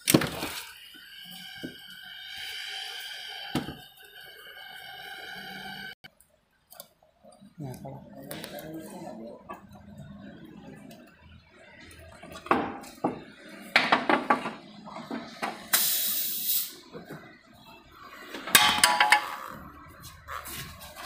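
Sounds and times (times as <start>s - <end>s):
hissing scrape: 0.6s - 6.0s
metal tools clanking: 18.5s - 19.6s.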